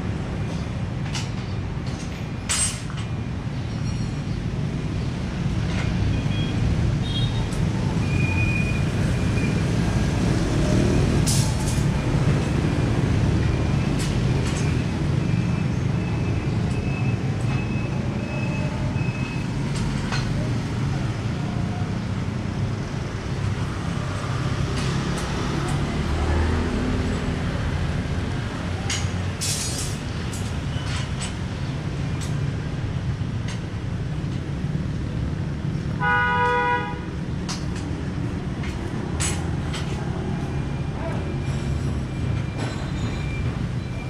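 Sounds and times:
traffic rumble: 0.0s - 44.0s
vehicle horn honking: 36.0s - 37.1s.

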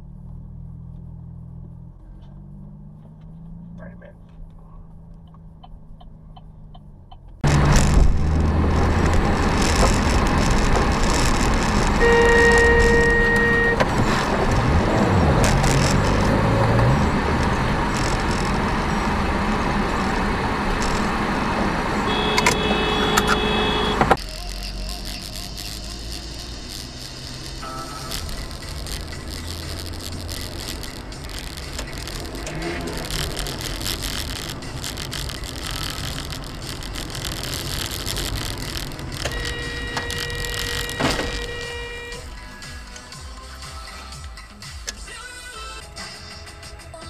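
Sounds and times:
vehicle road and wind noise: 0.0s - 47.0s
car horn: 9.0s - 34.2s, 35.6s - 42.6s.

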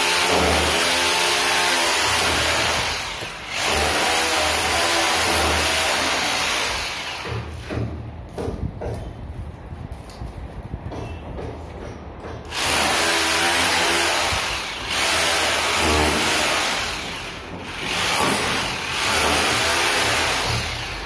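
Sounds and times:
rotary hammer into brick: 7.2s - 9.2s, 10.9s - 13.2s.

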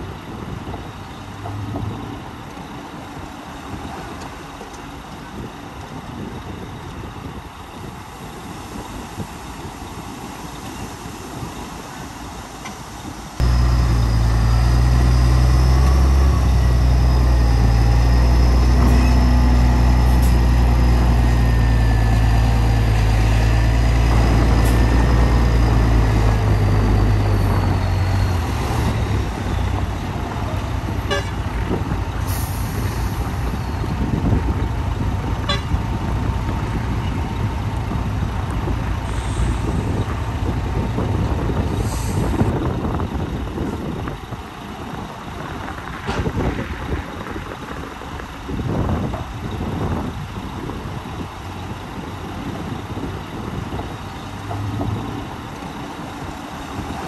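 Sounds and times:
diesel engine running loud: 12.6s - 57.0s.

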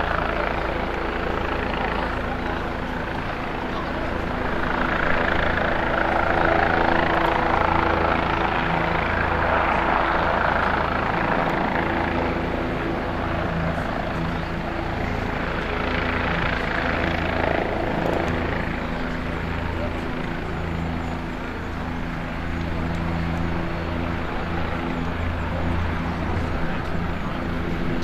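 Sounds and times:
helicopter flying overhead: 0.0s - 28.0s.

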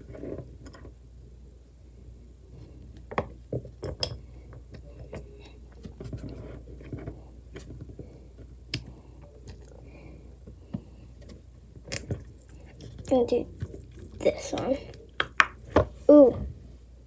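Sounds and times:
soft rubbing and shuffling: 4.3s - 11.8s, 15.9s - 17.0s.

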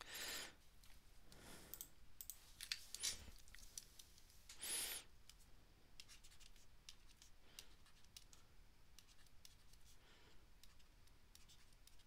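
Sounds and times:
stylus scratching on tablet: 6.0s - 10.0s, 10.6s - 12.0s.

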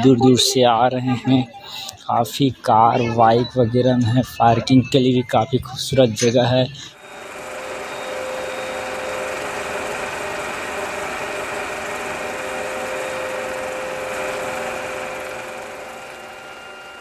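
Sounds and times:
small engine running: 6.7s - 17.0s.

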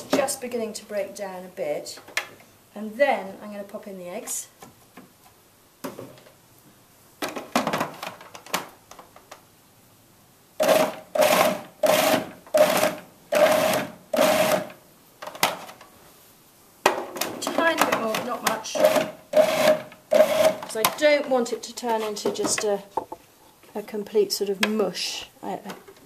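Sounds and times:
food processor pulsing: 10.6s - 14.7s, 18.8s - 20.6s.

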